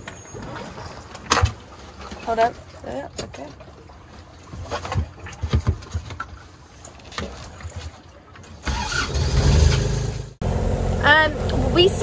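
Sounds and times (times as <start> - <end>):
boat engine running: 8.6 - 12.0.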